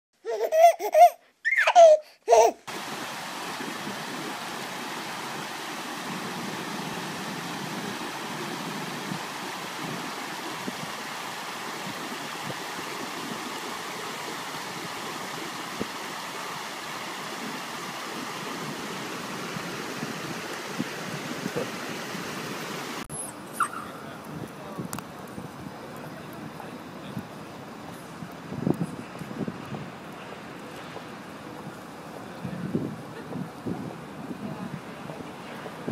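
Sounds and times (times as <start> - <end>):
stream water flowing over stones: 2.7 - 23.1.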